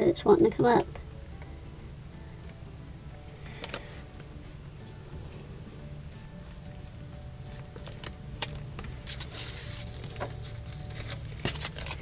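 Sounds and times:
steady low hum: 0:00.0 - 0:12.0
tape peeling off vinyl: 0:03.5 - 0:12.0.

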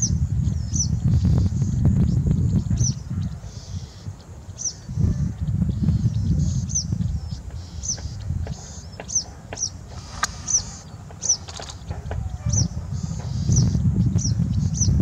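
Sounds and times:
wagtail calling: 0:02.6 - 0:15.0
steady low rumble: 0:04.6 - 0:15.0.

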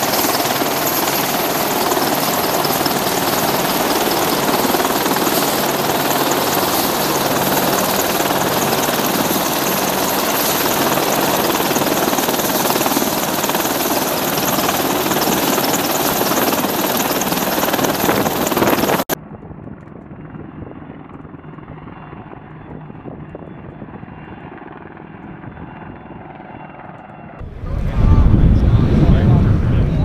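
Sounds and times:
distant helicopters droning: 0:00.0 - 0:30.0
helicopter hovering: 0:00.0 - 0:30.0
loud low rumble: 0:27.4 - 0:30.0.

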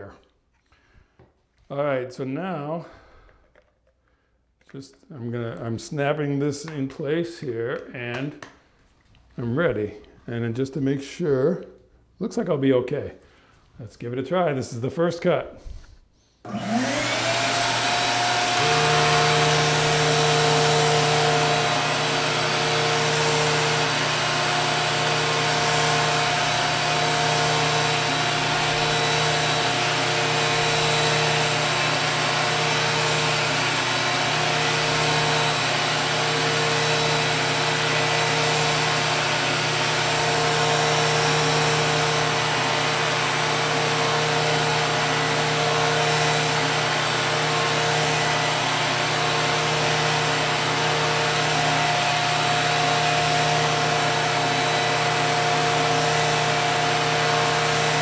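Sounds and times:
vacuum cleaner whine and hum: 0:15.6 - 0:58.0.

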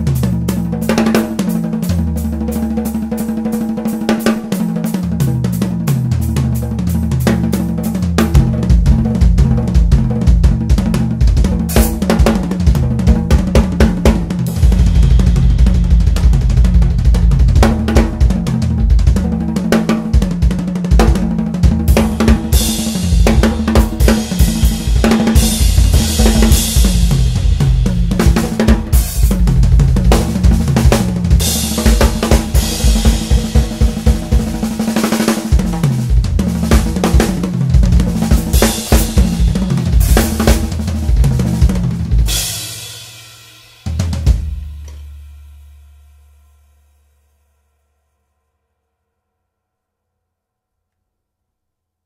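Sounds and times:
fast drum strokes: 0:00.0 - 0:45.8
cymbal crashes: 0:14.5 - 0:17.0.

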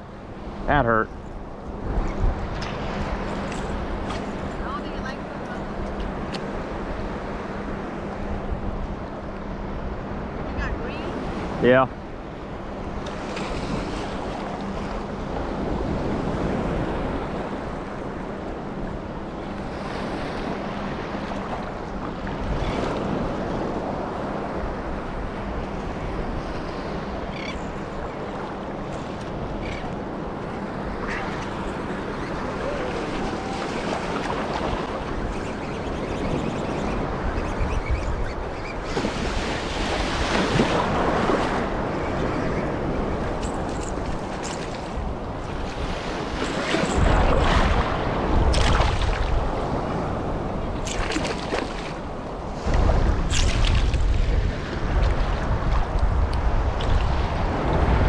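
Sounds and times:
surf waves breaking: 0:00.0 - 0:58.0
wind buffeting microphone: 0:01.2 - 0:11.4, 0:21.9 - 0:58.0.

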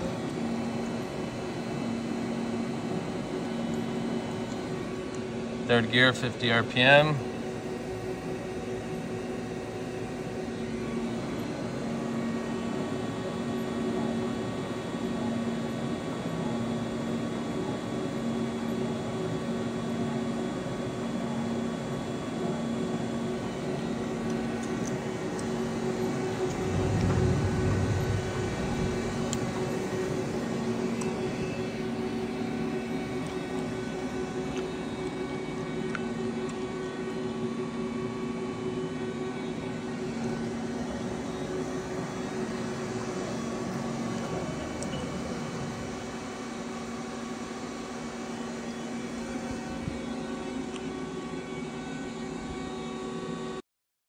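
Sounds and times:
lathe machine hum: 0:23.0 - 0:36.2
low rumble: 0:26.2 - 0:30.0.

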